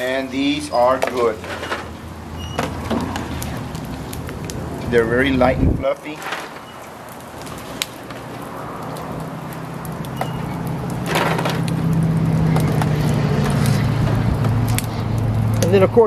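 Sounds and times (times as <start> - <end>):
low engine hum: 6.8 - 16.0
wire skimmer clattering on foil pan: 11.0 - 11.7.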